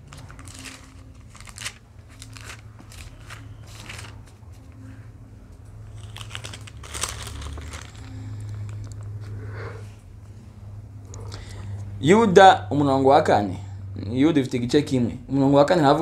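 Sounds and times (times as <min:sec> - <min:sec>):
pages rustling and flicking: 0:00.0 - 0:04.7, 0:05.9 - 0:08.8
low steady hum: 0:00.0 - 0:16.0.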